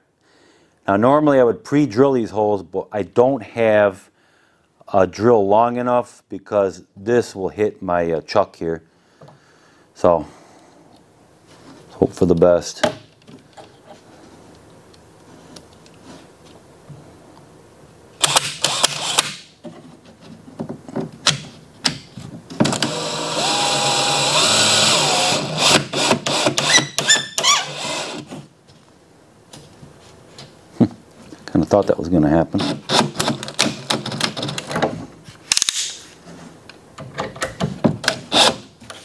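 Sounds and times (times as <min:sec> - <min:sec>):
cordless drill driving a screw: 0:18.2 - 0:19.4, 0:22.7 - 0:28.3, 0:38.3 - 0:38.6.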